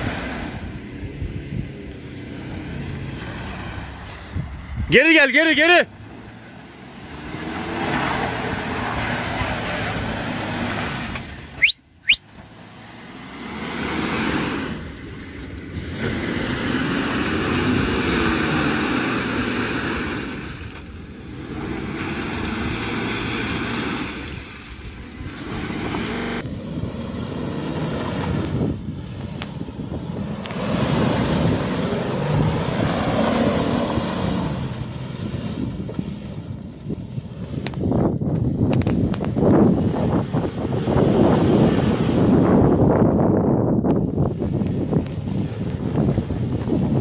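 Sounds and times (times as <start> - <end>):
tyres splashing muddy water: 0.0 - 42.8
suv engine revving: 0.0 - 47.0.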